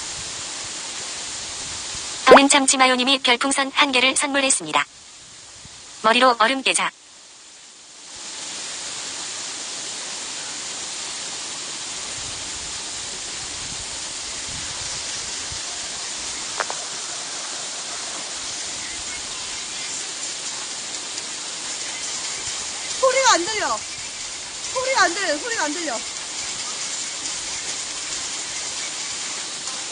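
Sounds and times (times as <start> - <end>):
waterfall rushing: 0.0 - 29.9.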